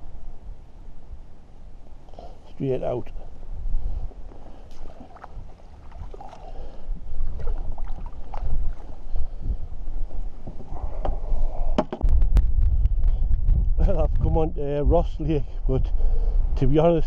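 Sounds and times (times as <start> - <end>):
wind buffeting microphone: 2.8 - 17.0
water sloshing and splashing: 4.7 - 9.1.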